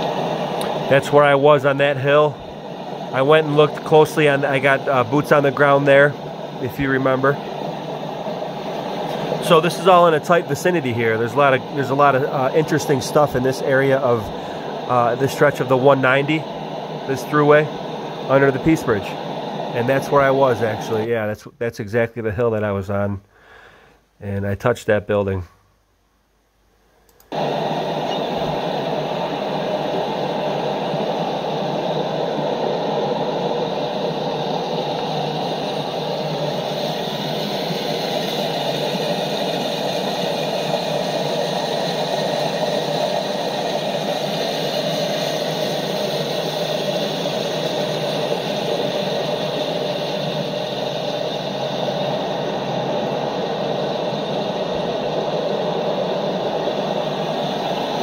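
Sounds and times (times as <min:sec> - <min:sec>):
steady rushing noise: 0:00.0 - 0:21.1, 0:27.3 - 0:58.0.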